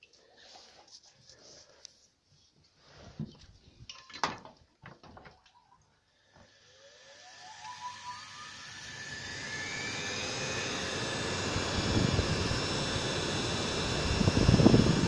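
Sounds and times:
lathe motor whining: 6.5s - 15.0s
rushing spindle and fan: 6.5s - 15.0s.

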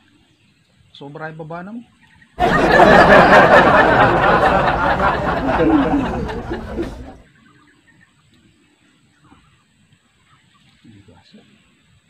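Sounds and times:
people laughing: 2.4s - 7.2s.

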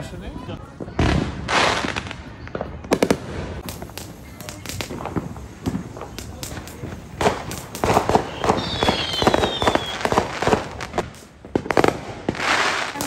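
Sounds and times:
firework crackling and popping: 0.6s - 13.0s
firework hissing rush: 2.9s - 13.0s
falling whistle: 8.2s - 10.1s.

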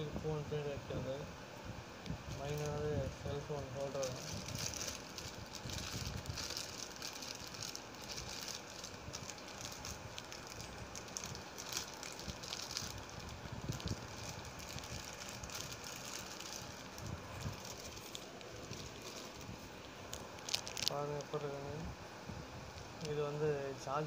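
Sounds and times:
plastic bags crinkling: 3.5s - 21.5s.

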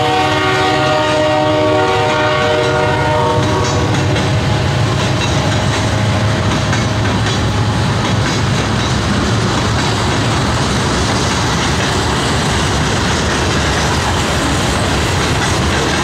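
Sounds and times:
locomotive horn chord: 0.0s - 4.2s
freight cars rumbling and clattering: 2.5s - 16.0s.

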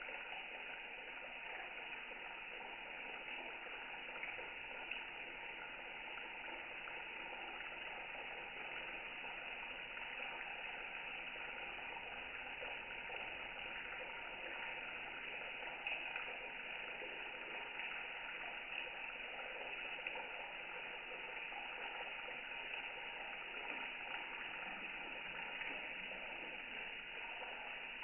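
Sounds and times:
tap water running into sink: 0.0s - 28.0s.

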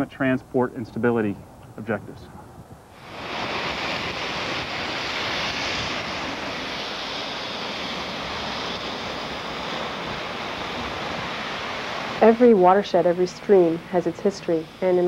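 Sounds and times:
river rushing over rapids: 3.0s - 15.0s.

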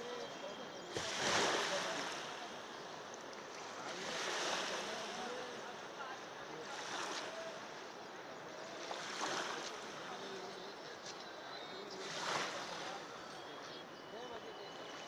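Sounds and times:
floodwater rushing: 0.9s - 6.0s.

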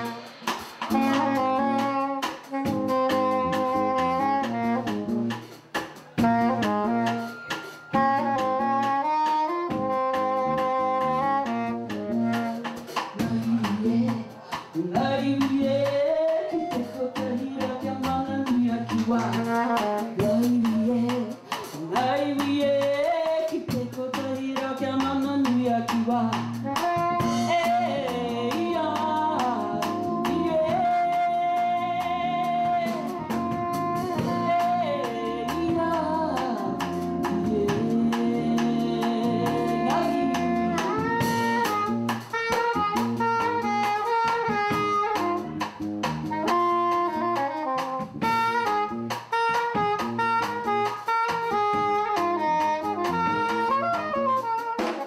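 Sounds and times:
bass: 0.0s - 55.0s
drum kit: 0.0s - 55.0s
soprano saxophone: 0.0s - 55.0s
woman singing into a microphone: 13.1s - 41.7s.

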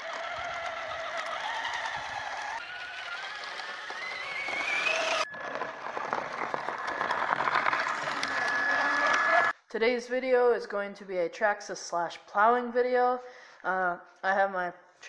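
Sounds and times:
electric motor whining: 0.0s - 9.5s
rapid crackle: 4.3s - 9.5s.

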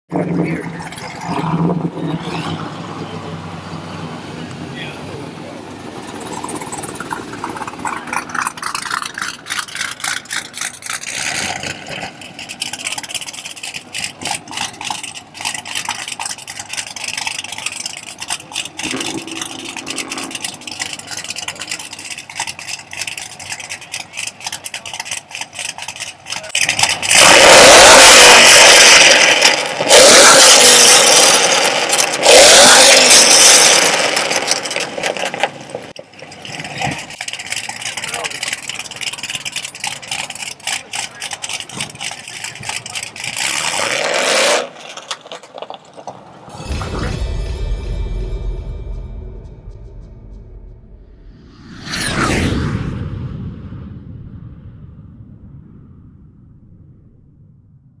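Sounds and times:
car engine revving: 0.1s - 35.8s
car engine idling: 2.2s - 27.4s, 34.3s - 43.7s.

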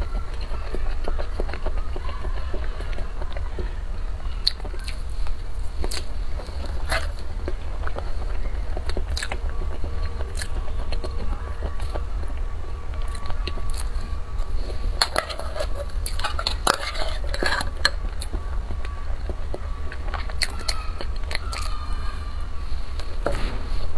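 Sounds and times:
biting and chewing: 0.0s - 23.9s
steady low hum: 0.0s - 23.9s
spoon scraping tin can: 15.0s - 18.4s.

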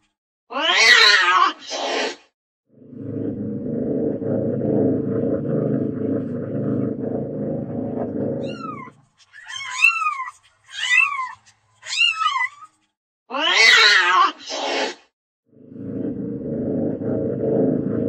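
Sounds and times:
cat yowling: 0.5s - 1.6s, 8.4s - 12.7s, 13.3s - 14.4s
cat meowing: 8.4s - 12.7s.

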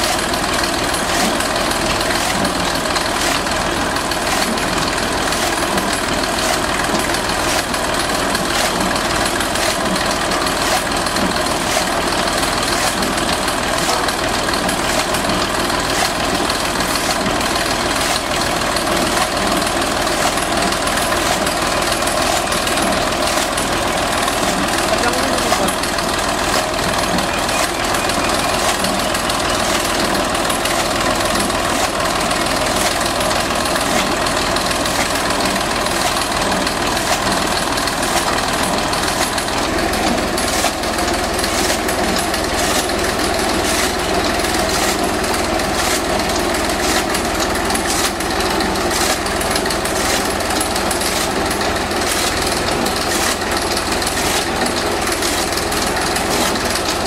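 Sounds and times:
tractor diesel engine running: 0.0s - 57.0s
chaff cutter knives clattering: 38.0s - 55.5s.

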